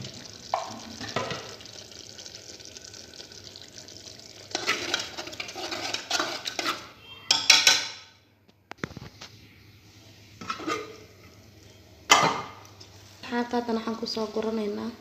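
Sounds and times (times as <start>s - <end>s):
food sizzling: 0.0s - 6.9s
spoon scraping a metal pot: 4.5s - 8.0s, 10.4s - 11.0s.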